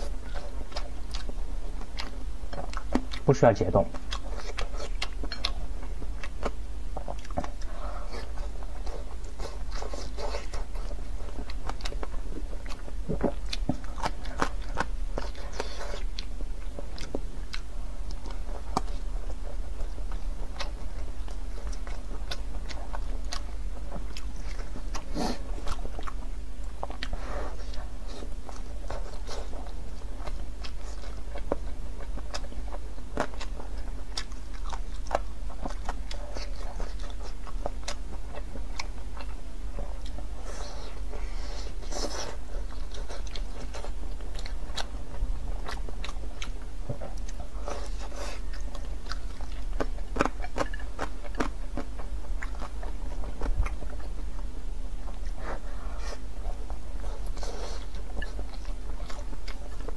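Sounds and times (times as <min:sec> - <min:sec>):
person chewing with wet smacks: 0:00.0 - 0:59.9
steady low hum: 0:00.0 - 0:59.9.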